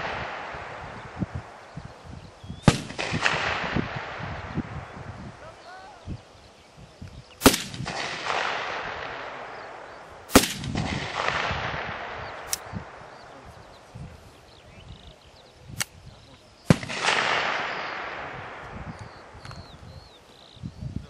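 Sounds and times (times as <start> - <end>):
rifle shots echoing: 0.0 - 1.7, 2.6 - 5.1, 7.4 - 13.3, 16.6 - 19.4
faint sharp crack: 10.3 - 12.7.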